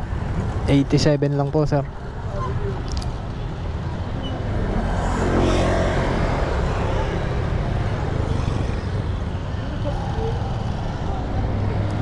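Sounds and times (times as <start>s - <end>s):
street traffic noise: 0.0s - 12.0s
vehicle passing close by: 3.9s - 9.2s.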